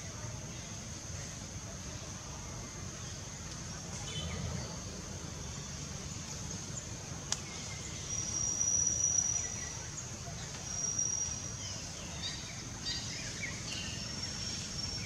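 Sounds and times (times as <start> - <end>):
faint bird chirps: 6.8 - 15.0.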